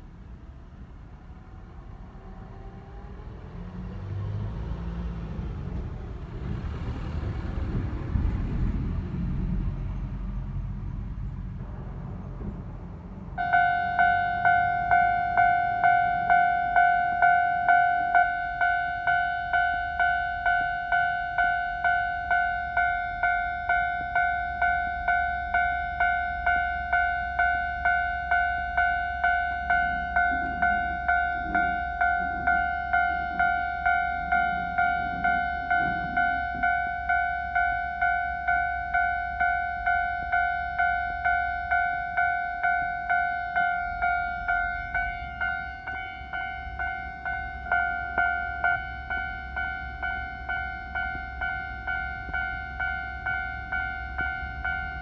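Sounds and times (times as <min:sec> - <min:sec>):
vehicle passing rumble: 0:00.0 - 0:19.1, 0:42.8 - 0:55.0
level crossing warning bell: 0:13.4 - 0:55.0.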